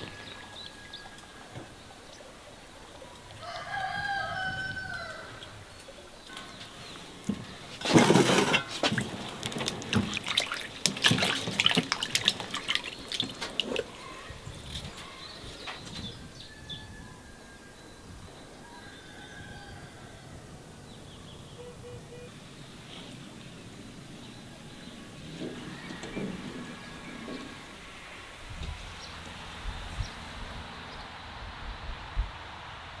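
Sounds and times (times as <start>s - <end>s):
water splashing and dripping: 0.0s - 16.1s
faint bird calls: 12.6s - 28.3s.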